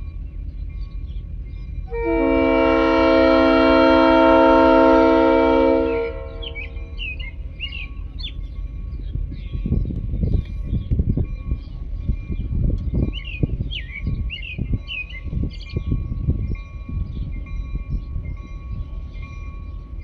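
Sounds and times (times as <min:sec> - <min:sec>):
birds chirping: 0:00.0 - 0:02.2, 0:05.9 - 0:20.0
locomotive air horn blast: 0:01.9 - 0:06.8.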